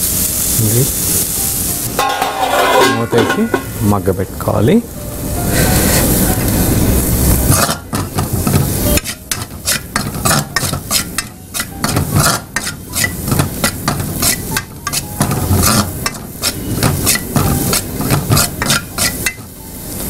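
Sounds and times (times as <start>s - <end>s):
metal spoon scraping pan: 2.0s - 3.8s, 7.5s - 19.5s.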